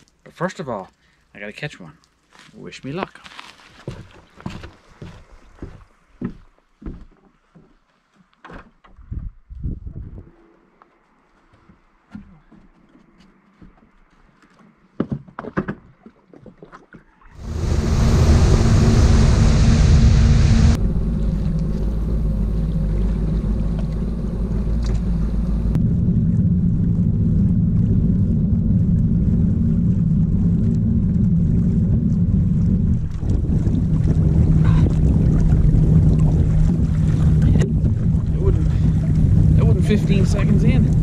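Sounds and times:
wind noise on microphone: 0:09.0 - 0:10.4, 0:17.4 - 0:41.0
watercraft engine rumbling: 0:17.4 - 0:41.0.

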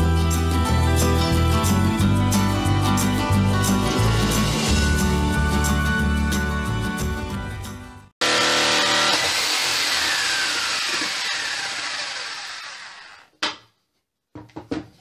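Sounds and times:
electric jigsaw cutting wood: 0:08.2 - 0:13.3.

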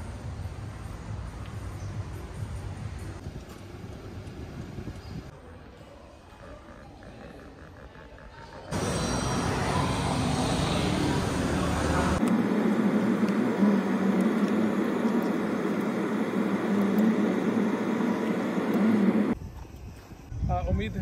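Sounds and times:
busy noisy ambience: 0:00.0 - 0:20.4
car moving slowly: 0:08.7 - 0:19.4.

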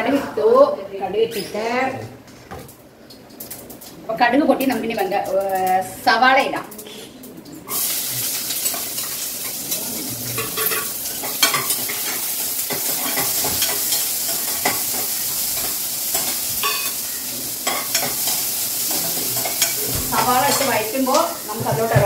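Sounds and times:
onions sizzling in hot oil: 0:07.7 - 0:22.0
spoon scraping and knocking pan: 0:10.4 - 0:17.0, 0:17.6 - 0:22.0.

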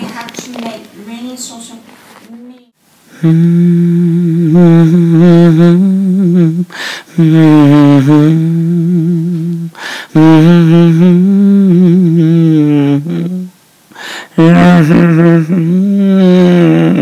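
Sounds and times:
man humming low notes: 0:03.1 - 0:13.6, 0:14.3 - 0:17.0
man breathing: 0:06.6 - 0:07.5, 0:09.7 - 0:10.2, 0:13.9 - 0:14.9.

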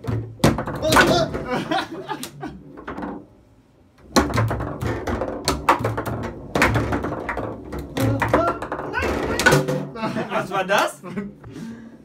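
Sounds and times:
foosball ball clacking: 0:00.0 - 0:01.5, 0:02.2 - 0:03.4, 0:04.0 - 0:09.9
foosball rods thudding: 0:00.0 - 0:10.0.

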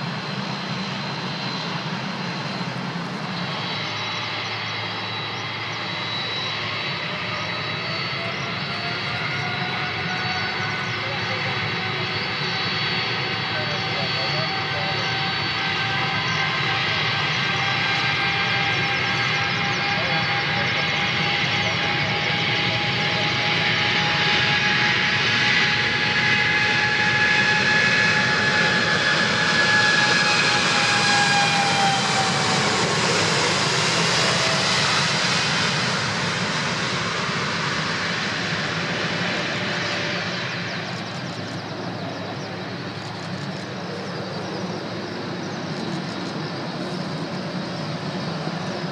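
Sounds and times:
jet engines at takeoff: 0:00.0 - 0:48.9.

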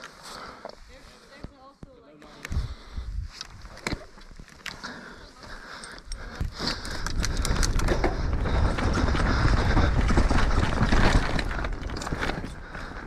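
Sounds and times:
wind rumble on microphone: 0:02.5 - 0:03.7, 0:06.4 - 0:12.7
tyres crunching over dirt and stones: 0:03.6 - 0:13.0
bike rattling and knocking: 0:06.1 - 0:13.0.

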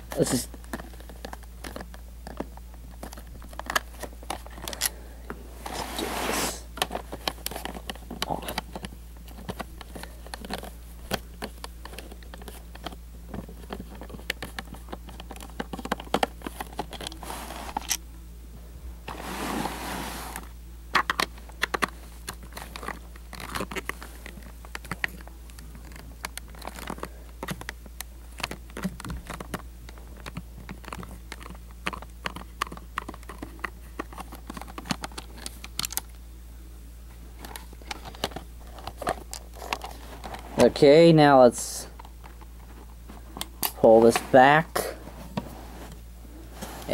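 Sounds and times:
plastic shell being handled: 0:00.0 - 0:05.0, 0:06.7 - 0:18.0, 0:19.1 - 0:36.2, 0:37.4 - 0:41.1
scrape on plastic: 0:05.6 - 0:06.7, 0:19.1 - 0:20.5.

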